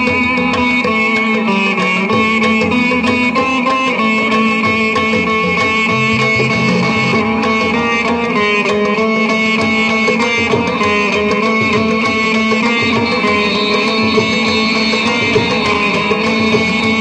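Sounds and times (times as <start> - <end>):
hand drums beating rhythm: 0.0 - 17.0
veena melody: 0.0 - 17.0.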